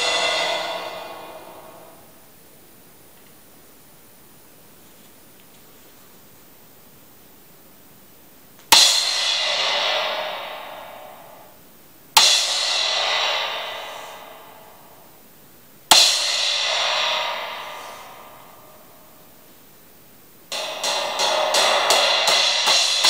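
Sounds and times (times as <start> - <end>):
trashy crash cymbal struck: 0.0 - 2.4, 8.7 - 15.3, 15.9 - 19.4, 20.5 - 23.0.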